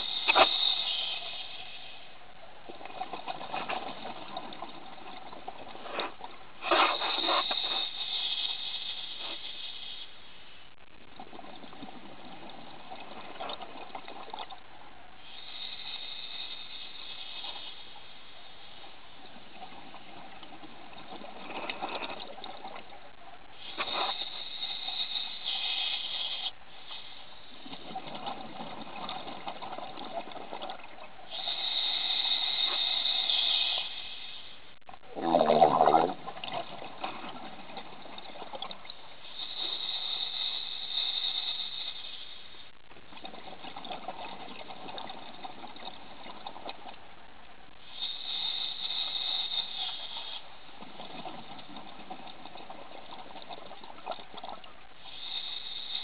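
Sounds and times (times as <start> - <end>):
regulator hissing inhale: 0.0 - 2.2, 6.6 - 10.8, 15.2 - 18.9, 23.6 - 27.7, 31.3 - 34.8, 39.2 - 42.8, 47.7 - 50.7, 54.9 - 56.0
exhaled bubbles burbling: 27.6 - 31.5, 35.0 - 39.0, 43.0 - 47.0, 50.6 - 54.9.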